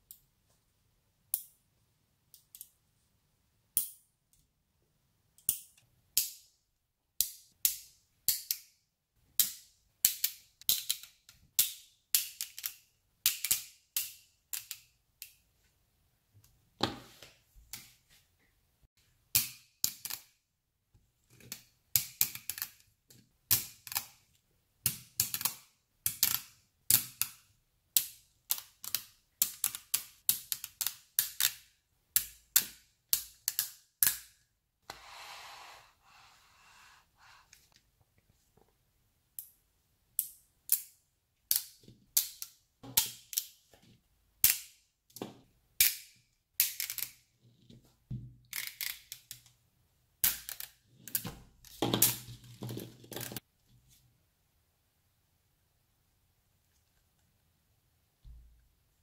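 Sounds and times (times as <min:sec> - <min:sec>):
magnet balls snapping together: 0:45.8 - 0:47.2, 0:50.2 - 0:52.4.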